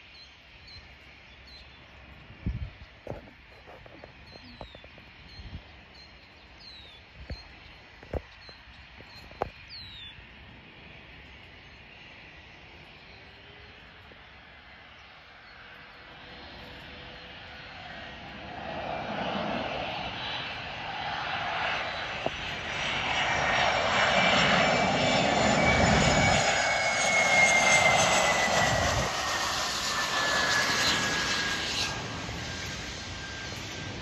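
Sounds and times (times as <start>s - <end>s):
jet engines passing: 0.3s - 34.0s
high engine whine: 15.4s - 34.0s.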